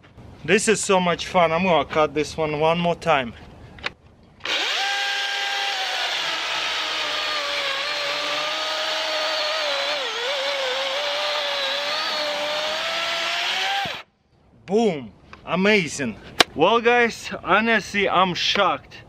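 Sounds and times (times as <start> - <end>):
electric chainsaw cutting log: 4.4 - 14.1.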